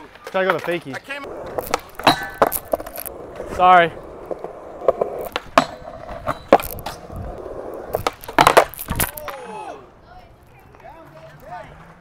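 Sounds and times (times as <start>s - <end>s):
skateboards rolling on concrete: 0.0s - 12.0s
skateboard clacks and knocks: 0.1s - 9.4s.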